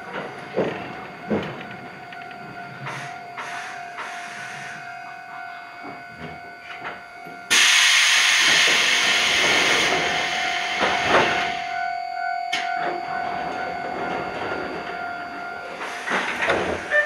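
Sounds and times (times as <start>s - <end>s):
faint steady whine: 0.0s - 16.8s
compressed air hiss from train: 2.9s - 4.8s, 7.5s - 11.7s.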